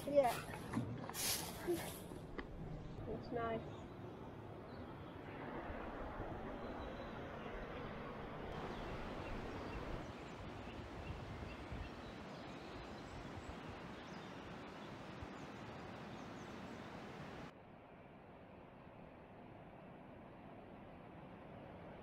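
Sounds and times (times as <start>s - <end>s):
steady rushing hiss: 0.0s - 2.3s, 8.6s - 17.5s.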